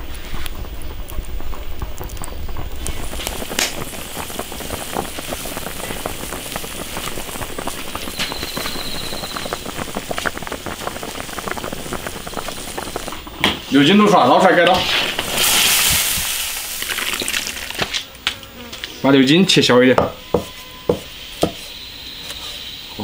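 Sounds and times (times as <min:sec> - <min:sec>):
liquid boiling and bubbling: 0:00.0 - 0:18.2
wood fire crackling: 0:00.0 - 0:22.8.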